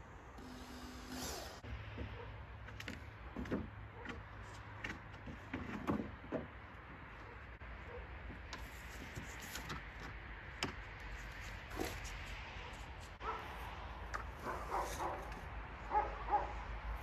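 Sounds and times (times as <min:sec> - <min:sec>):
cordless drill driving screw: 0:00.4 - 0:01.6
wooden boards knocking and scraping: 0:01.9 - 0:07.0.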